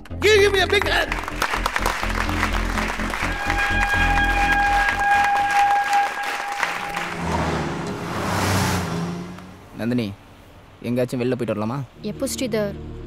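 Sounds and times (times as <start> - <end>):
crowd applauding: 0.0 - 8.2
background music long high note: 0.2 - 9.5.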